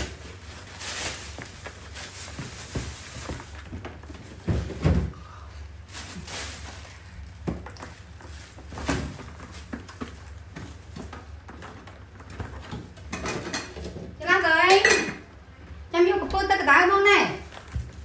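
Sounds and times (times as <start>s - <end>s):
knocks and thumps of handling: 1.2s - 5.2s, 7.3s - 14.2s.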